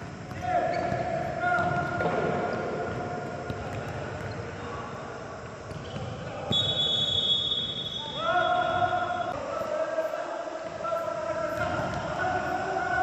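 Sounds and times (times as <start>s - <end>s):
footballs kicked and bouncing: 0.0s - 6.8s, 11.4s - 13.0s.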